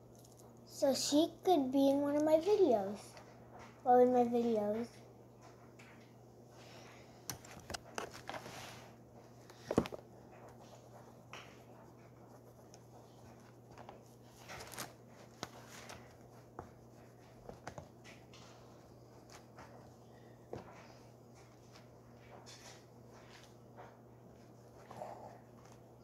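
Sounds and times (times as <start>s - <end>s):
low steady hum: 0.0s - 26.0s
oil pastel scratching on paper: 10.4s - 20.0s.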